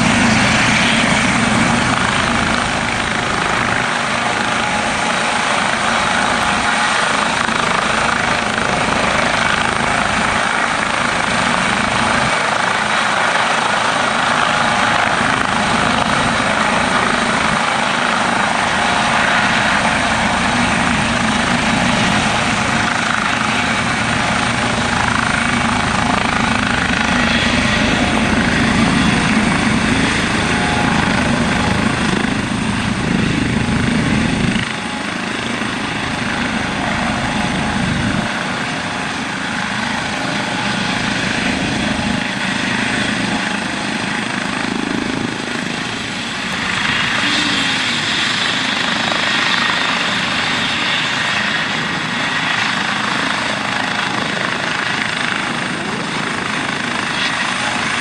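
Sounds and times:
helicopter turbine whine: 0.0s - 58.0s.

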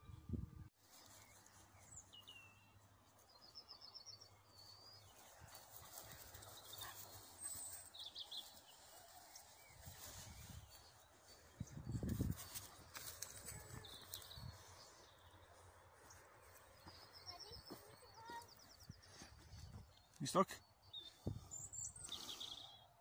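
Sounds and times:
faint high bird chirps: 16.0s - 23.0s.

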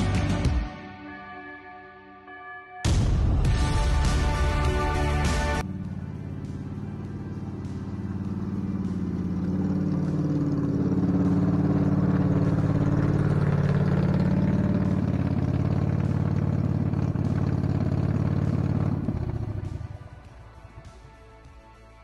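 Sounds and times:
riding mower engine running: 4.3s - 21.4s.

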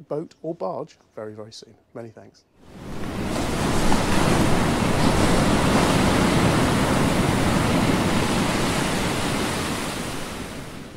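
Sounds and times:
rushing water: 2.7s - 10.9s.

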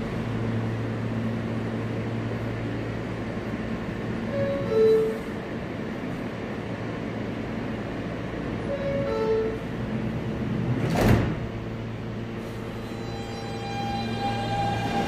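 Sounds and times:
standing train hum: 0.0s - 15.0s
train doors sliding shut: 8.6s - 15.0s.

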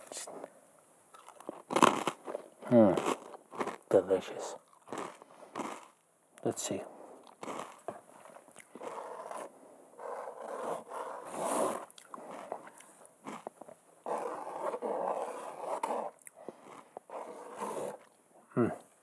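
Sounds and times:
hand scraping canvas: 8.8s - 11.9s, 14.0s - 18.1s.

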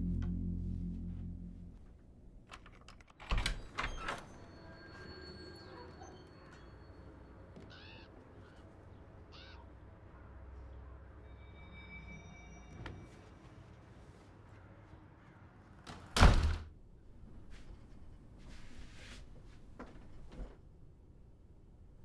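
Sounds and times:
low steady hum: 0.0s - 2.8s
crow cawing: 7.6s - 8.6s, 9.3s - 9.7s.

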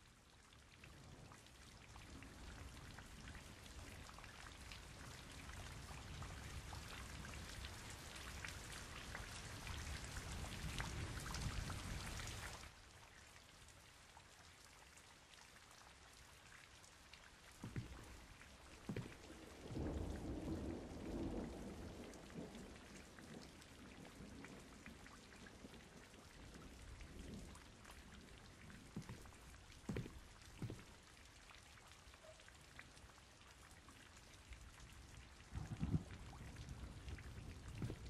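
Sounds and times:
rain falling: 0.0s - 38.0s
low thumps: 17.6s - 18.2s, 18.9s - 19.2s, 29.9s - 30.9s.

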